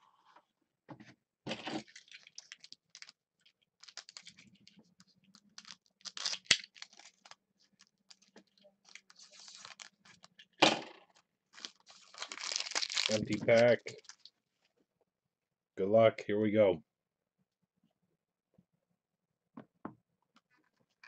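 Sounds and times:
foil wrapper crinkling: 0:01.8 - 0:14.4.

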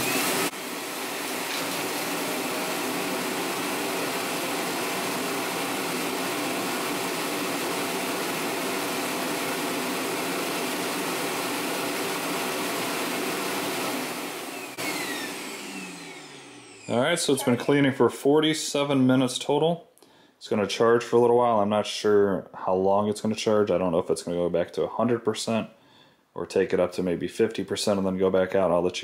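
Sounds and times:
vacuum suction motor whooshing: 0:00.0 - 0:17.4.

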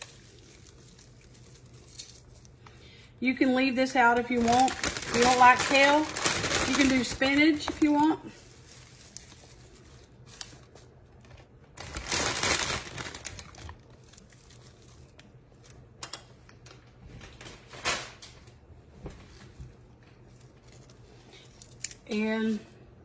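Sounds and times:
leaves rustling and crinkling: 0:00.0 - 0:02.6, 0:04.1 - 0:10.9, 0:11.8 - 0:15.2.

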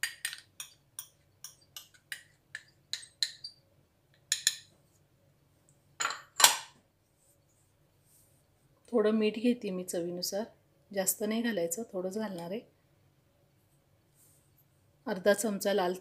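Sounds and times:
metal spoon clinking on cup: 0:00.0 - 0:03.5.

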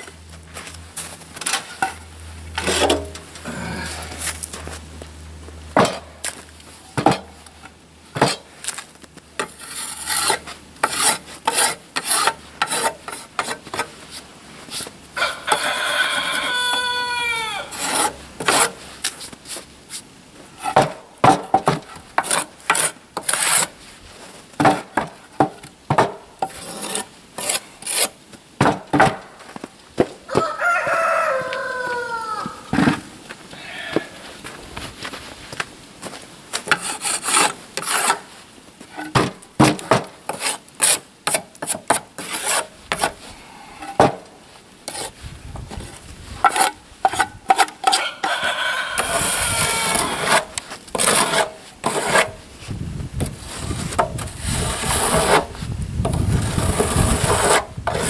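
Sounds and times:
hand saw cutting wood: 0:09.4 - 0:13.9, 0:17.7 - 0:18.8, 0:21.6 - 0:23.8, 0:26.4 - 0:28.2, 0:36.6 - 0:38.3, 0:39.0 - 0:43.2, 0:46.5 - 0:52.4, 0:53.5 - 0:58.0
rooster crowing: 0:15.2 - 0:17.8, 0:30.3 - 0:32.7, 0:47.9 - 0:50.2.

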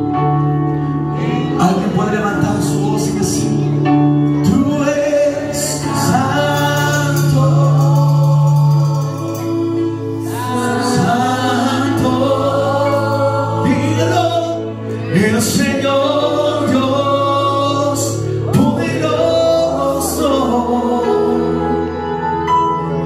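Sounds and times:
worship band playing: 0:00.0 - 0:23.0
voices singing: 0:04.5 - 0:23.0.

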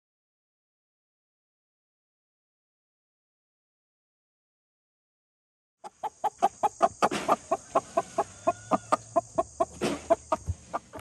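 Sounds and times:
chicken clucking: 0:05.8 - 0:11.0
chicken squawks: 0:05.8 - 0:11.0.

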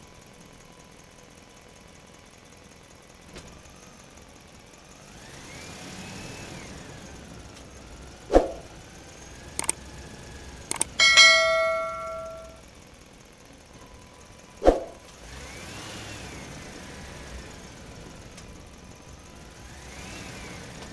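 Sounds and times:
sharp clicks: 0:10.7 - 0:11.1
bright bell ding: 0:10.7 - 0:12.6.

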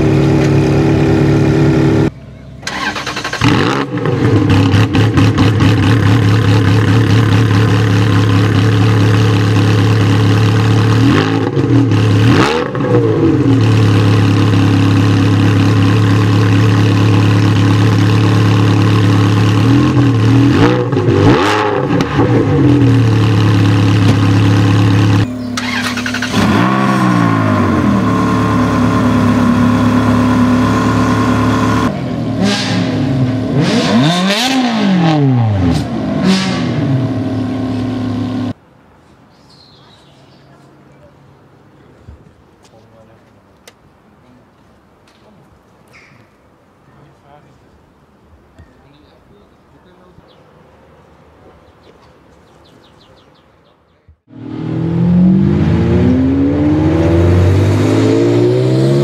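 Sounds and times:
car engine idling and revving: 0:00.0 - 0:38.6, 0:54.2 - 0:59.0.

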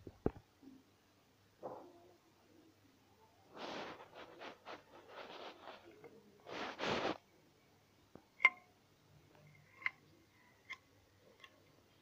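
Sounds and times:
rustling handling scrapes: 0:03.5 - 0:07.2.

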